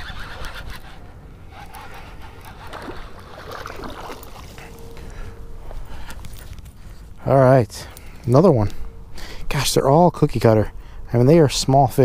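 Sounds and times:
fishing reel winding: 0.0s - 1.0s
faint water splashes: 1.8s - 5.1s
handling noises: 2.6s - 7.2s.

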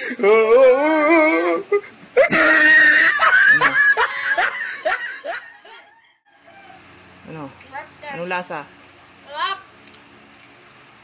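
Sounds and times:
high-pitched cry: 0.0s - 3.8s
person wailing: 0.0s - 4.1s.

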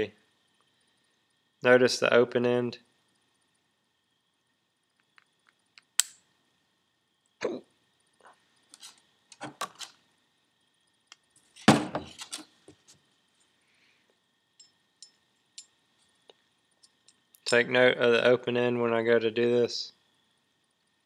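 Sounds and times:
metal parts knocking on workbench: 11.6s - 12.4s.

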